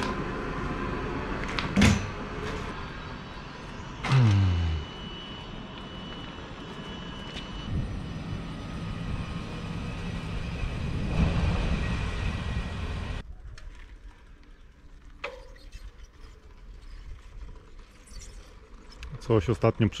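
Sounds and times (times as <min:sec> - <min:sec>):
outdoor background noise: 0:00.0 - 0:20.0
faint high whine: 0:02.2 - 0:13.2
train rumble: 0:07.7 - 0:13.2.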